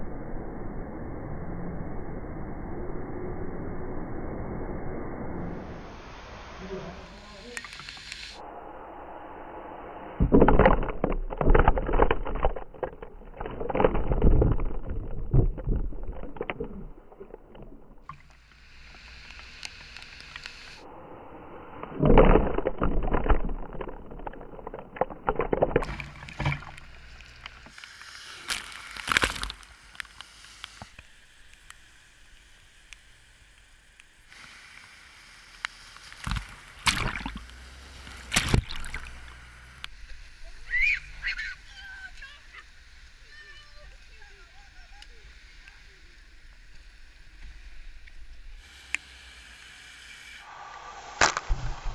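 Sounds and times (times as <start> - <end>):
floodwater splashing from buses: 25.2 - 30.9, 34.3 - 47.7.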